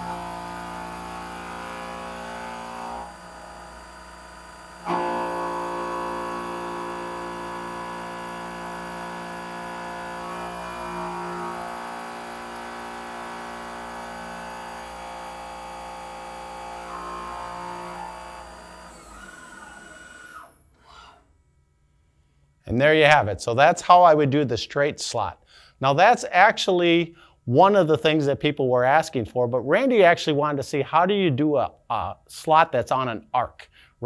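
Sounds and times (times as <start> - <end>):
milling machine whine: 0.0 - 21.0.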